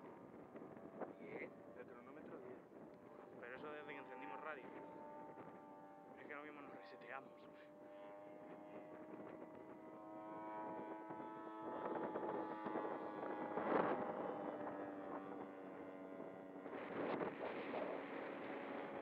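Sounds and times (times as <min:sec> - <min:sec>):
model aeroplane engine droning: 0:00.0 - 0:19.0.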